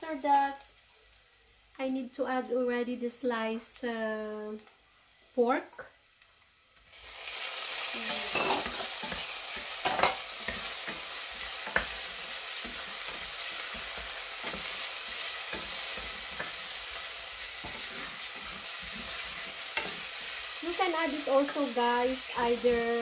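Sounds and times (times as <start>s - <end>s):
meat sizzling in hot oil: 0.0s - 1.8s, 4.2s - 23.0s
wooden spatula scraping pan: 8.1s - 20.5s.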